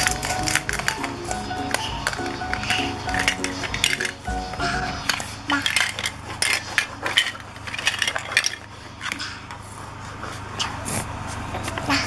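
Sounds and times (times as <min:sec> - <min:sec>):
plastic toys clattering: 0:00.0 - 0:09.6.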